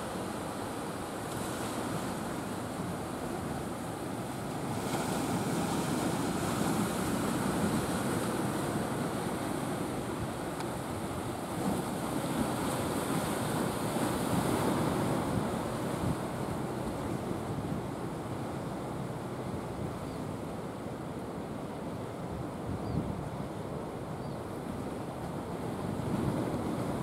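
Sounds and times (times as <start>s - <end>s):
surf rushing: 0.0s - 19.9s.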